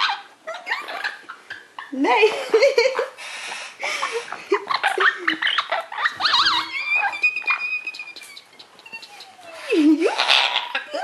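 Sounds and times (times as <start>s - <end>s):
parrot chattering: 0.0s - 2.2s, 3.0s - 11.0s
parrot high whistle: 6.0s - 9.5s.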